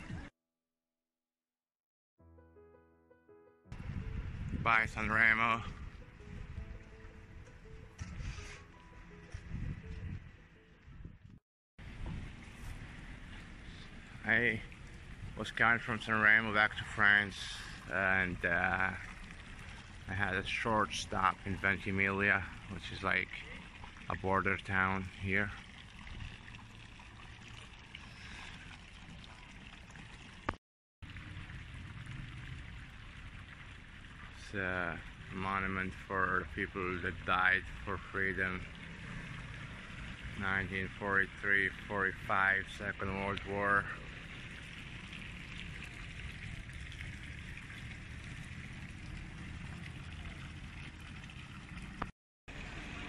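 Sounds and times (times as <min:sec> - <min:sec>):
traffic hum: 0:11.8 - 0:53.0.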